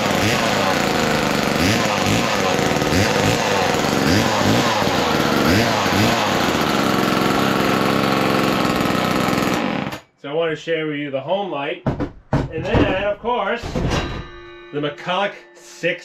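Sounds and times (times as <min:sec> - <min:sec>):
chainsaw revving: 0:00.0 - 0:10.0.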